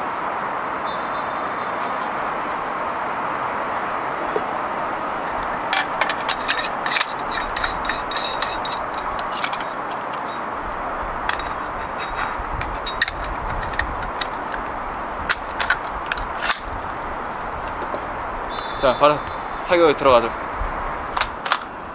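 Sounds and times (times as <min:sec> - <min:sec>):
steady background hiss: 0:00.0 - 0:21.9
airsoft gun clicks and rattles: 0:05.3 - 0:10.4, 0:11.3 - 0:16.8, 0:21.2 - 0:21.7.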